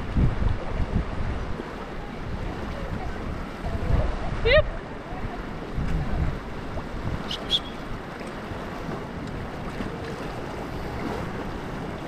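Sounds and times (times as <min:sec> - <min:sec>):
river water washing: 0:00.0 - 0:12.0
wind gusting on microphone: 0:00.0 - 0:12.0
short high chirps: 0:07.2 - 0:07.9.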